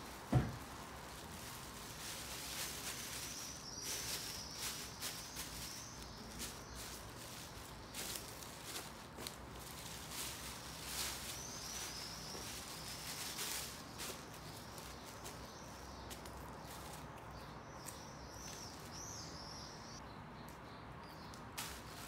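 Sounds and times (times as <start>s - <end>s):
plastic bag crinkling: 0.0s - 16.9s.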